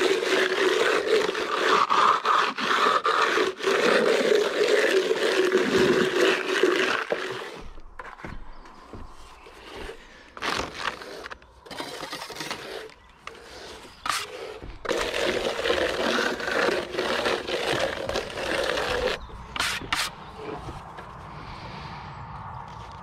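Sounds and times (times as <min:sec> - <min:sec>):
hand tool scraping render on wall: 0:00.0 - 0:21.1.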